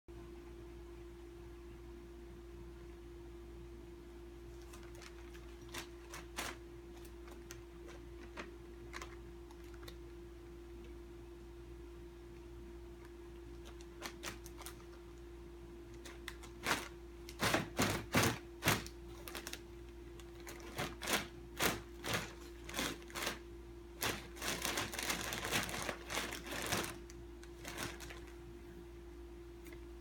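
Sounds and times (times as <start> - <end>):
plastic wrapper crinkling: 4.5 - 10.0, 13.5 - 15.2, 15.9 - 28.4.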